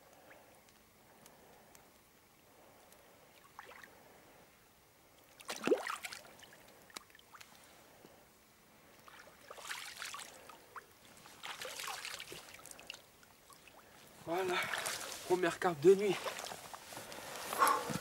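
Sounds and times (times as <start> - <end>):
water splashing: 5.4 - 7.5, 9.0 - 10.5, 11.2 - 15.3, 16.0 - 16.6.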